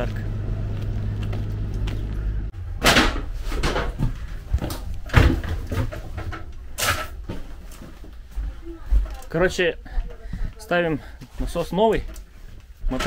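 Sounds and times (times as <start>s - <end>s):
steady low hum: 0.0s - 9.1s
knocks and rustles of handling: 2.9s - 9.3s.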